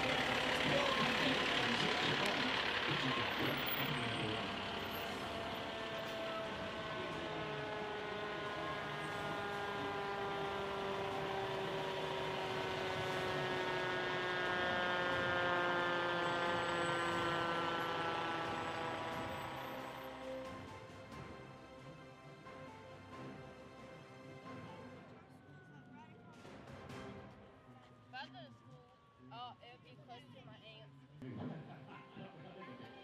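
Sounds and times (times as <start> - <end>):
siren winding down: 0.0 - 21.0.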